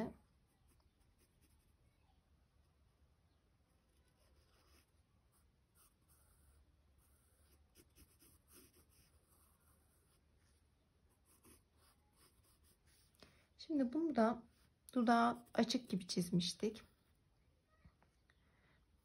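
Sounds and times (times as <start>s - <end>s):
pencil scratching on paper: 0.5s - 1.8s, 3.8s - 13.2s, 14.4s - 16.2s.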